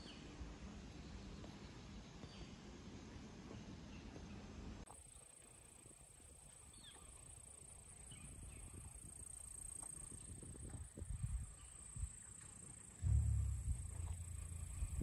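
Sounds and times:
wind rumble on microphone: 0:08.1 - 0:12.4, 0:13.0 - 0:15.0.

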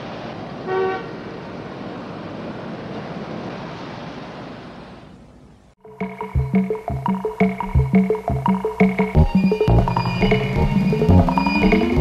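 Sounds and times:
rushing background noise: 0:00.0 - 0:12.0
brief tone: 0:09.2 - 0:12.0.

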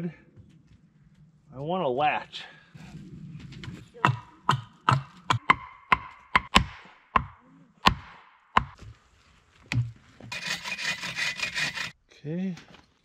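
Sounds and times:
tool striking wood: 0:04.0 - 0:08.8
blade rasping wood: 0:10.3 - 0:12.0.

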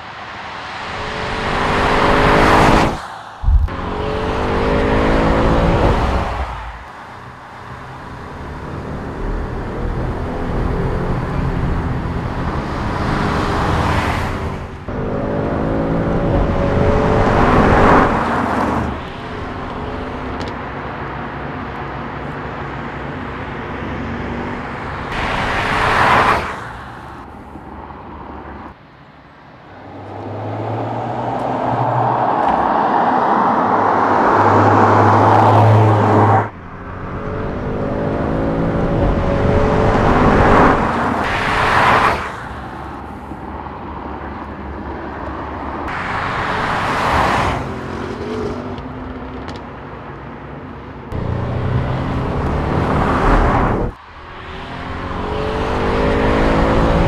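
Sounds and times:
road noise: 0:00.0 - 0:57.0
car engine accelerating: 0:00.8 - 0:20.4, 0:34.3 - 0:42.4, 0:51.1 - 0:57.0.

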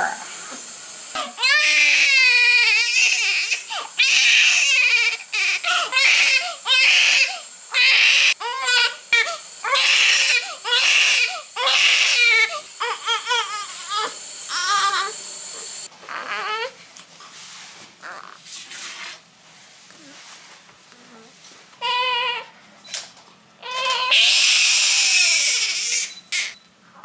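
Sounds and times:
newborn baby crying: 0:01.2 - 0:15.2, 0:16.0 - 0:16.8, 0:21.8 - 0:22.5, 0:23.6 - 0:26.6.

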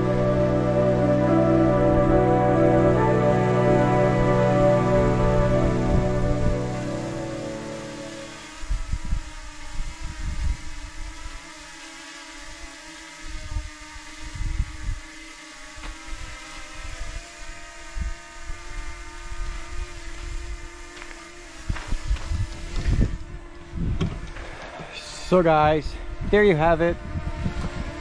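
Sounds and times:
drone propellers whining: 0:00.0 - 0:09.6
wind buffeting microphone: 0:25.6 - 0:28.0.

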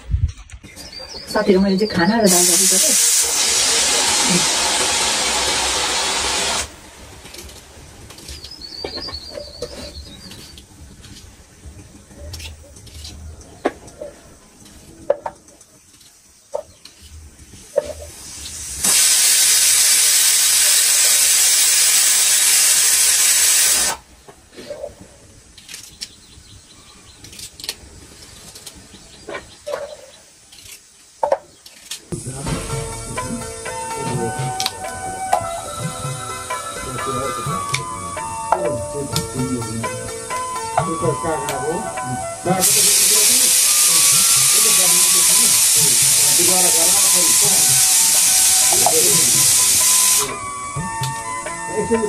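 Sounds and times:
steam hissing from a pot: 0:02.1 - 0:08.3, 0:17.4 - 0:24.1, 0:32.1 - 0:40.4, 0:41.3 - 0:51.0
high bird chirps: 0:08.2 - 0:10.6.

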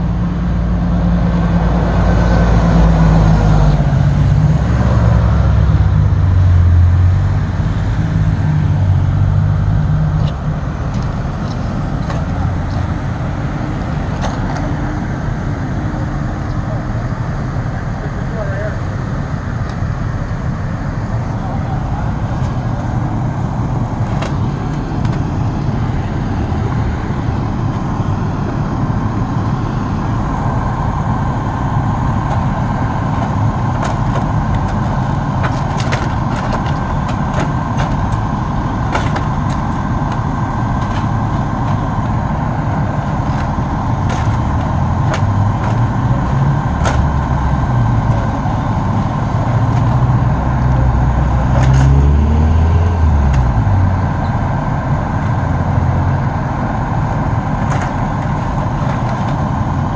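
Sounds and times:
diesel engine rumbling: 0:00.0 - 0:59.9
sharp clicks and knocks: 0:33.1 - 0:38.3.

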